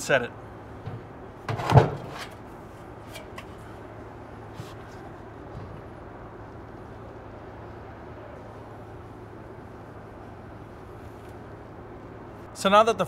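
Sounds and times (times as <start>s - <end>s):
steady low hum: 0.0s - 12.6s
metal flashing thump: 0.8s - 2.3s.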